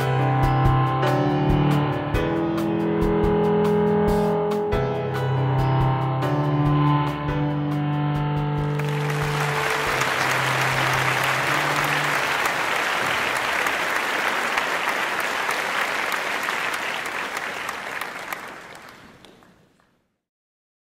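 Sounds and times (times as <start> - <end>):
held music notes: 0.0 - 16.4
crowd applauding: 8.7 - 20.0.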